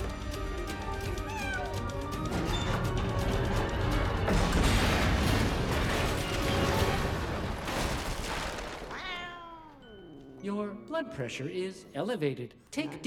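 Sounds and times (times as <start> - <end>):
film soundtrack music: 0.0 - 7.3
cat meowing: 1.2 - 1.8, 8.9 - 10.0.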